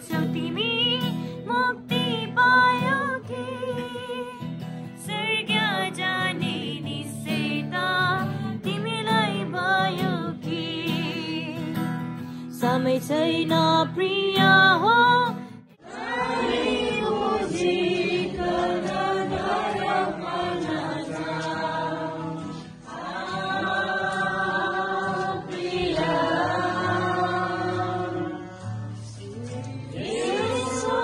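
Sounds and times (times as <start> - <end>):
person singing: 0.0 - 15.4, 23.0 - 31.0
strummed guitar: 0.0 - 15.8, 18.1 - 31.0
group singing a hymn: 15.8 - 31.0.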